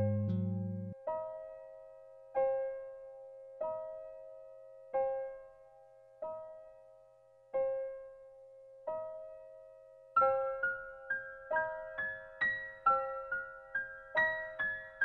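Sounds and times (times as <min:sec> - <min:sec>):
electric piano note repeating: 0:00.0 - 0:01.0.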